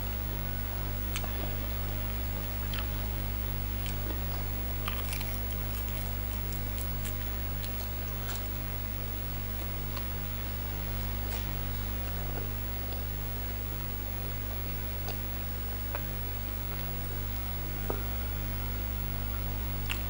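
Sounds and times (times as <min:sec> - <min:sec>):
steady low hum: 0:00.0 - 0:20.0
crisp chewing crunches: 0:02.4 - 0:10.5, 0:19.8 - 0:20.0.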